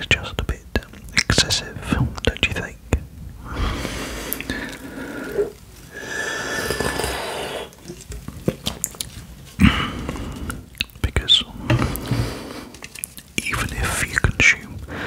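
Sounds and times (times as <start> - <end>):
wet mouth clicks: 4.3 - 5.6, 10.4 - 11.3, 12.8 - 13.5.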